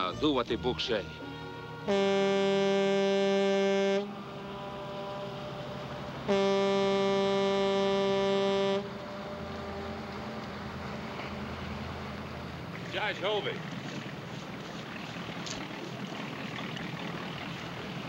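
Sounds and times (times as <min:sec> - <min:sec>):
boat whistle blasts: 0:00.0 - 0:10.4.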